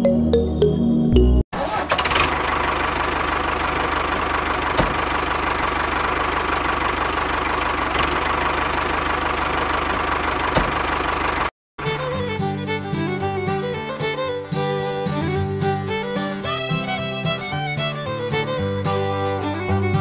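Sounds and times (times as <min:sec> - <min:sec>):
tractor engine idling: 0:01.6 - 0:14.8
instrumental music with fiddle: 0:11.8 - 0:20.0.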